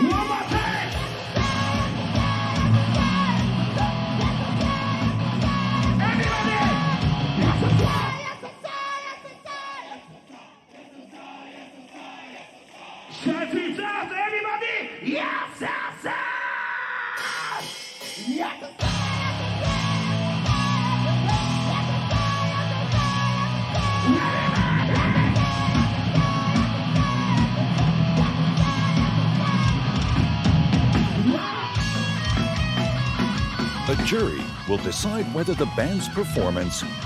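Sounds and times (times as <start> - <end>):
distorted electric guitars: 0.0 - 8.4, 17.2 - 37.0
shouted vocals: 0.0 - 30.2.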